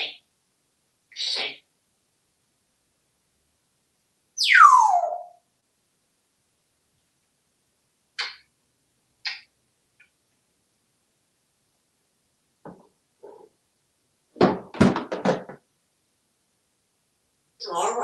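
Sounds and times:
toys falling with thumps: 0:14.4 - 0:15.6.

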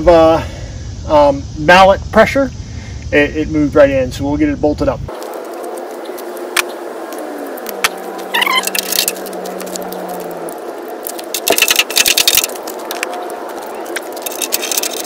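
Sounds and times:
low hum: 0:04.9 - 0:15.0
metal hardware clinking: 0:13.9 - 0:15.0.

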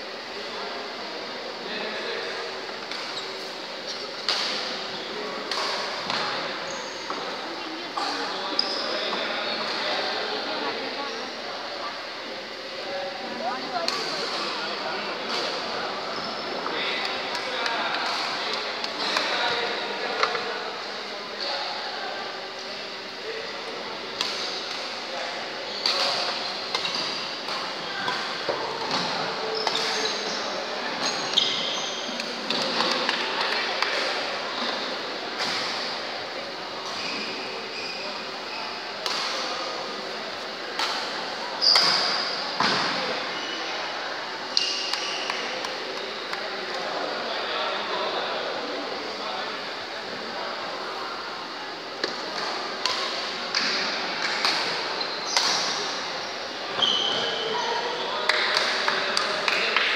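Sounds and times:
background hubbub: 0:00.0 - 0:59.9
shoes squeaking on wooden court: 0:02.9 - 0:04.3, 0:08.5 - 0:09.8, 0:25.7 - 0:27.4, 0:28.9 - 0:32.9, 0:36.8 - 0:39.3, 0:41.6 - 0:42.6, 0:54.9 - 0:58.3.

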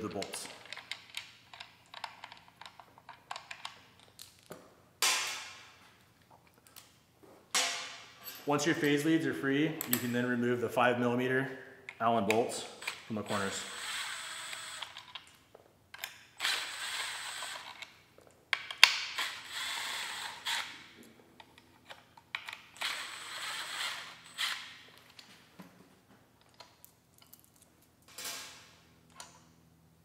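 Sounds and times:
small metallic clicks: 0:00.2 - 0:04.5
cordless drill driving out bolts: 0:12.8 - 0:15.1, 0:16.4 - 0:17.8, 0:19.2 - 0:20.8, 0:22.7 - 0:24.7.

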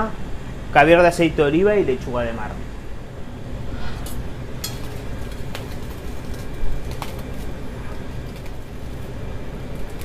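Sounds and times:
blowtorch flame burning: 0:02.9 - 0:10.0.

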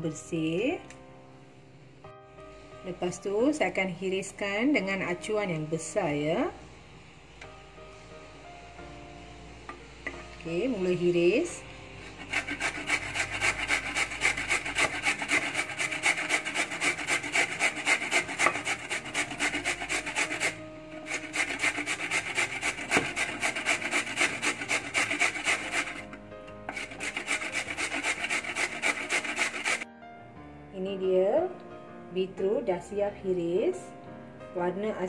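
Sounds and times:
beetroot scraped on box grater: 0:12.1 - 0:26.1, 0:26.7 - 0:29.8.

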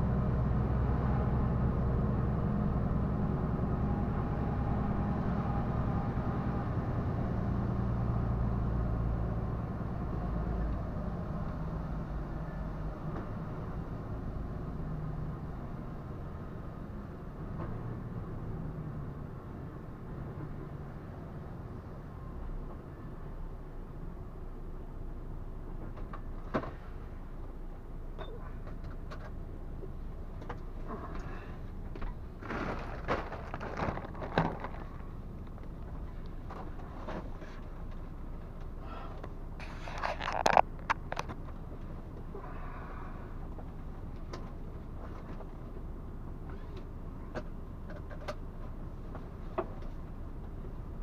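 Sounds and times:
truck engine and road rumble: 0:00.0 - 0:51.0
clicks and rattles: 0:39.9 - 0:41.6.

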